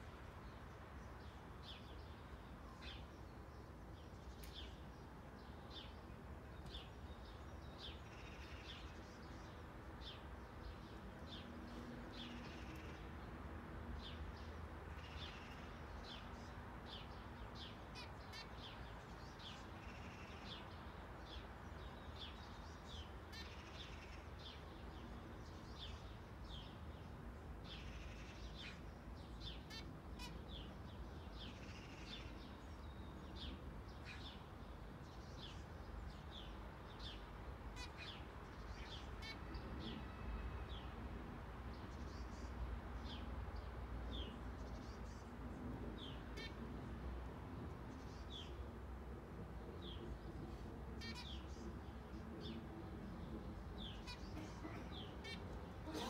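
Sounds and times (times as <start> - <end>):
birds chirping: 53.2 - 56.0.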